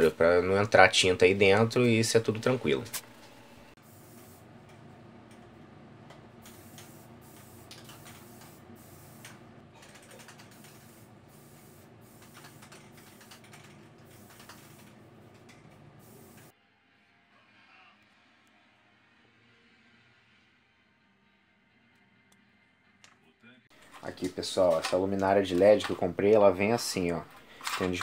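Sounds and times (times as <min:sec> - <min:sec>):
spray paint can hissing: 0:03.8 - 0:04.5, 0:06.4 - 0:09.4, 0:10.0 - 0:15.1, 0:16.0 - 0:16.5.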